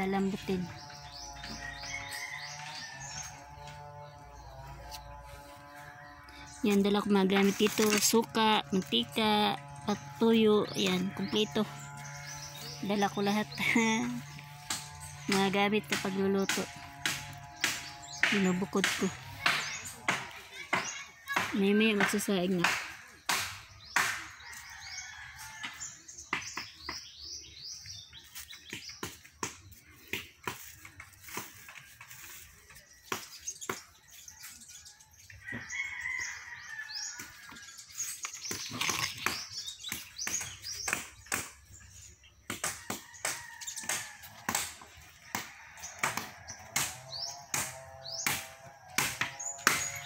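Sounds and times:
birds chirping: 0.0s - 50.0s
sharp knocks: 14.7s - 24.4s.

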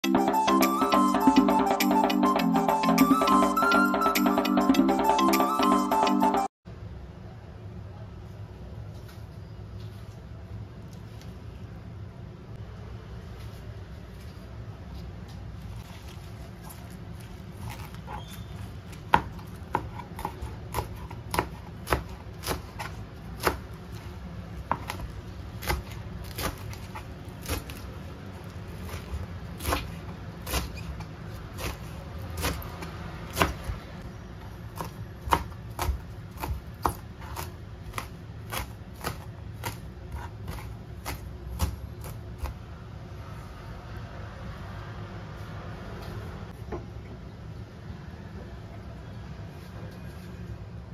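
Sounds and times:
knife chopping on cutting board: 18.9s - 24.0s, 24.6s - 27.9s, 28.8s - 33.8s, 34.8s - 42.6s.

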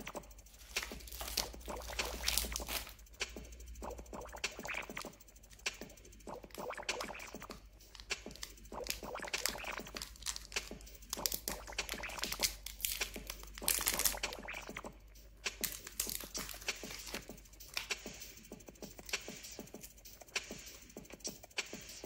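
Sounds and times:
wrapper crinkling and tearing: 0.5s - 3.0s, 7.9s - 14.5s, 15.6s - 17.9s.

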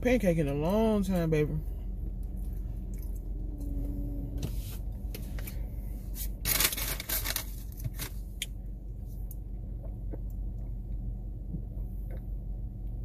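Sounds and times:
steady low hum: 0.0s - 13.0s
packaging rustling scrape: 6.2s - 8.2s.

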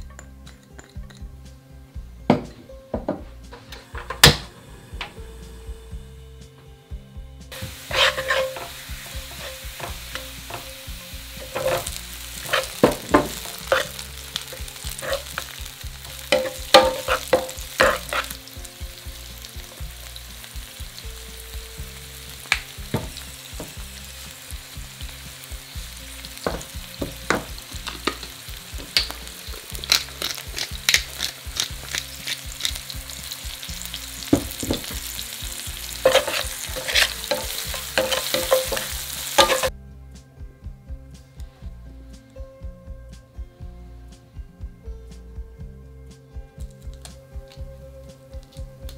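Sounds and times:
oil sizzling in frying pan: 7.5s - 39.7s
wooden spatula scraping pan: 7.6s - 10.7s, 11.4s - 14.0s, 14.6s - 15.5s, 16.3s - 18.4s, 34.4s - 39.7s.

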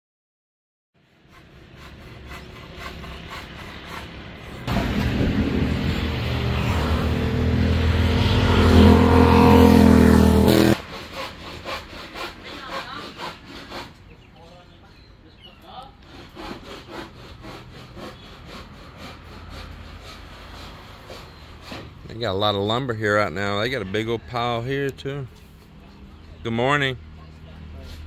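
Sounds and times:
motor running loudly: 4.6s - 10.8s.

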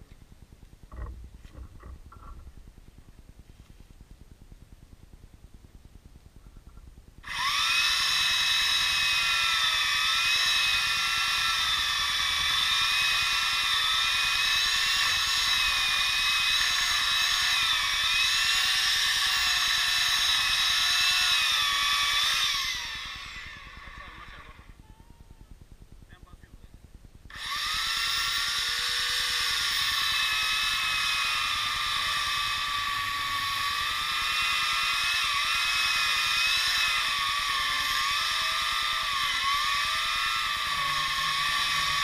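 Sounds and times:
electric chainsaw cutting wood: 7.2s - 24.8s, 27.3s - 42.0s.

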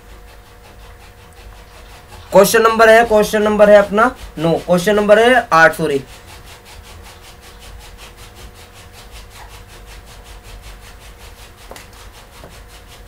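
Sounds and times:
pulsing hiss: 0.0s - 6.2s.

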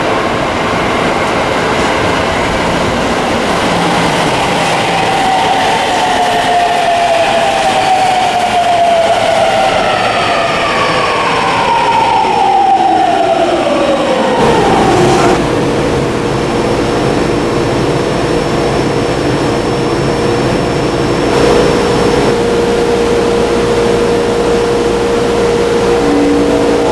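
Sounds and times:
subway train motor whine: 0.0s - 26.9s
train braking: 1.4s - 13.5s, 21.4s - 26.9s.

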